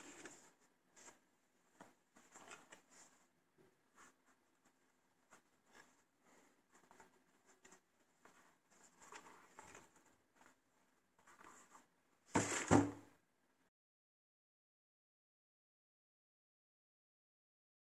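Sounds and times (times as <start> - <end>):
shoe set down in cardboard box: 12.3 - 13.0.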